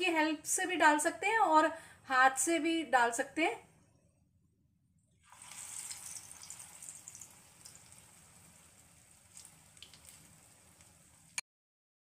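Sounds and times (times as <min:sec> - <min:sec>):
batter sizzling in hot oil: 0:05.2 - 0:11.4
oil popping and crackling: 0:05.2 - 0:11.4.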